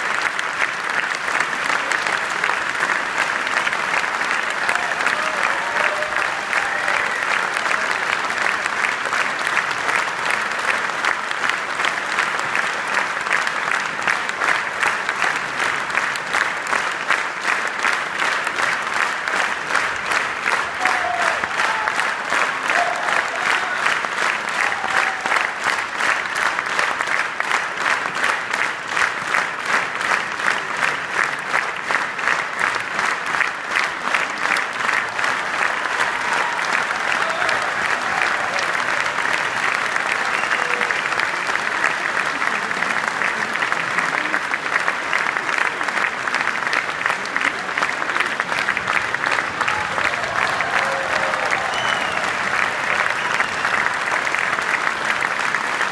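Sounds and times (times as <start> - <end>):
audience applauding: 0.0 - 55.9.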